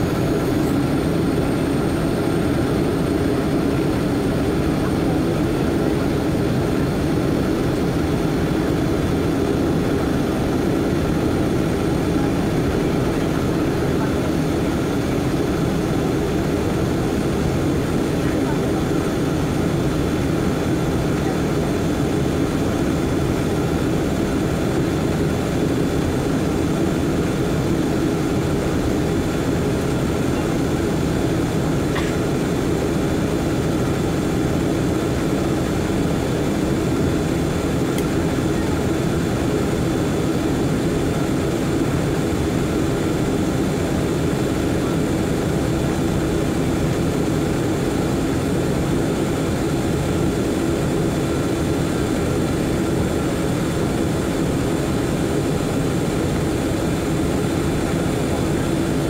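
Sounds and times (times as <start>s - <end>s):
jet airliner cabin noise: 0.0s - 59.0s.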